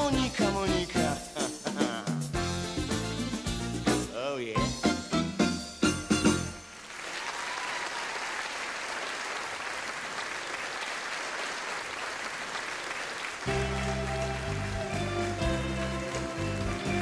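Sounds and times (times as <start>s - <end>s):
band playing: 0.0s - 6.8s, 13.4s - 17.0s
audience applauding: 6.8s - 17.0s
bass line: 13.5s - 17.0s.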